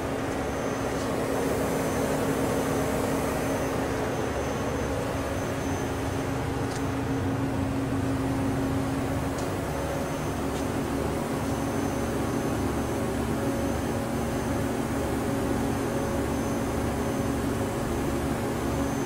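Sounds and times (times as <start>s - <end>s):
faint high whine: 0.0s - 19.0s
machine spindle hum: 0.0s - 19.0s.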